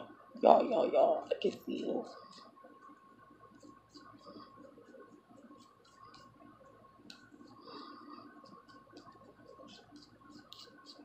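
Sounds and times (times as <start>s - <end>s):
faint steady hum: 0.0s - 11.0s
comb scratching through hair: 3.6s - 6.4s, 7.1s - 11.0s.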